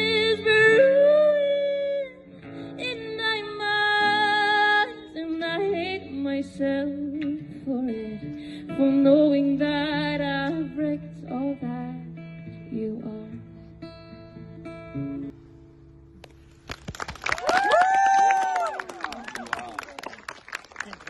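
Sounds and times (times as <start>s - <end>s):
woman singing: 0.0s - 13.7s
strummed guitar: 0.0s - 16.5s.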